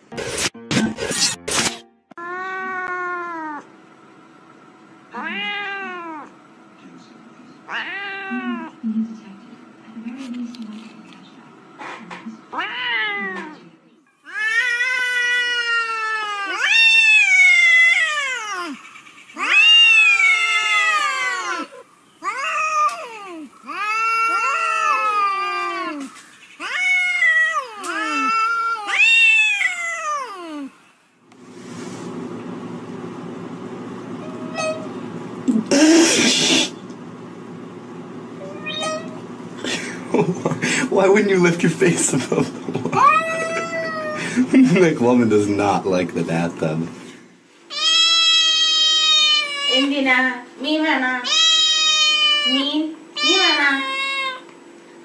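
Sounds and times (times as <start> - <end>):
cat meowing: 2.2 - 3.7, 5.1 - 6.3, 7.7 - 8.7, 12.5 - 13.6, 14.2 - 18.8, 19.4 - 30.8, 34.2 - 34.9, 38.4 - 39.2, 43.0 - 44.2, 47.7 - 49.9, 51.2 - 52.6, 53.2 - 54.4
steady low hum: 17.1 - 47.6.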